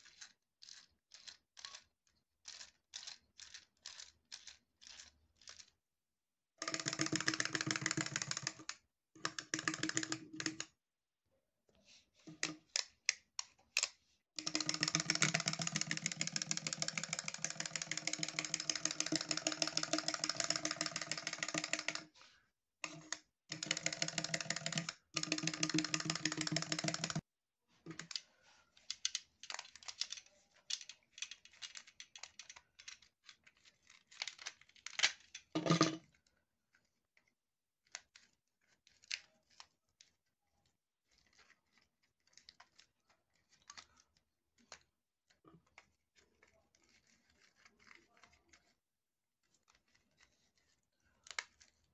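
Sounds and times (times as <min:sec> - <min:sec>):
toy mechanism clicking: 0:00.0 - 0:05.7, 0:06.6 - 0:10.7, 0:12.3 - 0:22.1, 0:22.8 - 0:27.2, 0:27.9 - 0:36.0.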